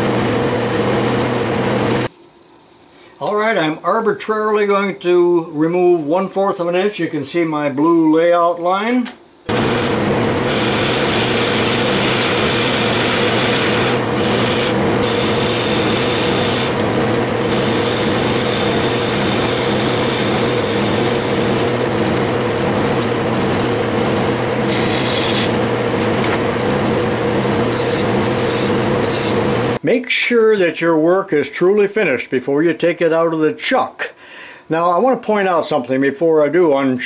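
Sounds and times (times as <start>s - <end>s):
tool cutting metal hissing: 9.5s - 25.6s, 26.2s - 29.8s
metal lathe humming: 9.5s - 29.8s.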